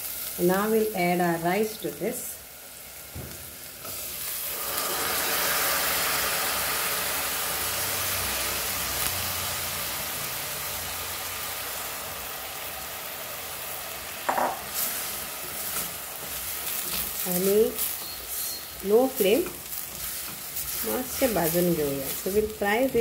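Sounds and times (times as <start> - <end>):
hot oil sizzling: 0.0 - 23.0
rice poured into pot: 4.4 - 7.5.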